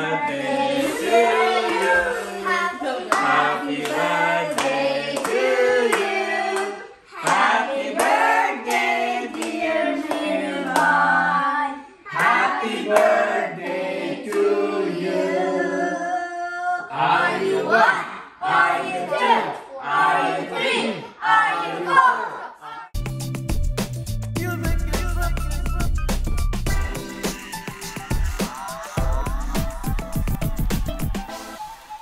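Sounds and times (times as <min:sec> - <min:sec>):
women and children singing: 0:00.0 - 0:22.9
hand-clapping: 0:03.1 - 0:11.0.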